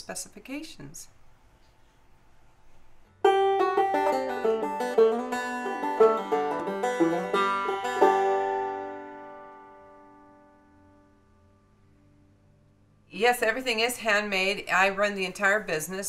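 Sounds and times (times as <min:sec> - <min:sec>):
plucked string instrument music: 0:03.2 - 0:11.1.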